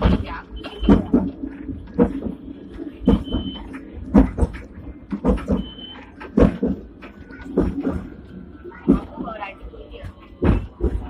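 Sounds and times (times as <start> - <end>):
tram rumbling and rattling: 0.0 - 11.0
sharp knock of tram: 3.0 - 8.2, 10.4 - 11.0.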